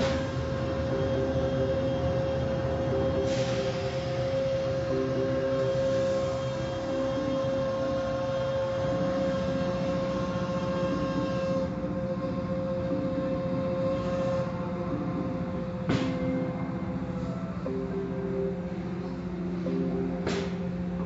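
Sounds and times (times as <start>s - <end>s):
car wash machine hum: 0.0s - 21.0s.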